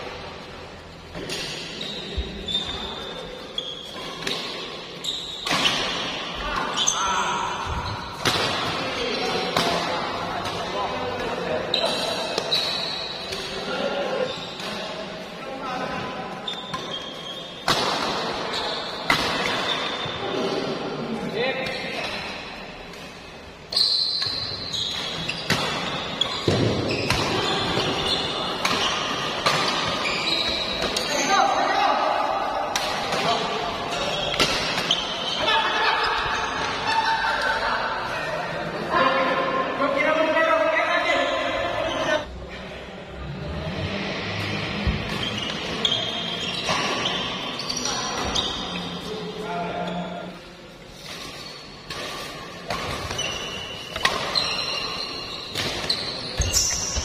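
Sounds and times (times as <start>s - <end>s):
shoes squeaking on court floor: 0.8s - 9.8s, 10.4s - 15.0s, 16.3s - 20.6s, 21.5s - 31.8s, 33.1s - 37.5s, 44.9s - 57.0s
racket hitting shuttlecock: 4.0s - 4.8s, 8.1s - 8.8s, 17.6s - 18.4s, 25.0s - 30.0s, 51.8s - 57.0s.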